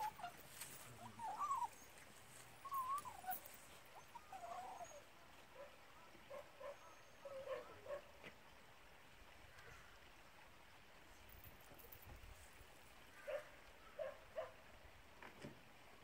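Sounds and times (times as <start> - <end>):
dog whining: 1.2 - 1.8, 2.6 - 5.0.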